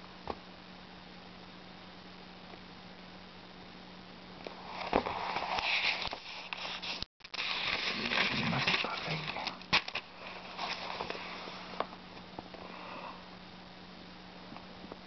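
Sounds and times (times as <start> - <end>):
low steady hum: 0.0 - 15.0
book pages turning: 4.6 - 11.8.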